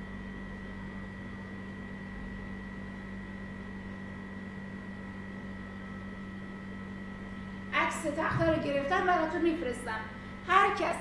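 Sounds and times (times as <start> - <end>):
electrical hum and hiss: 0.0 - 11.0.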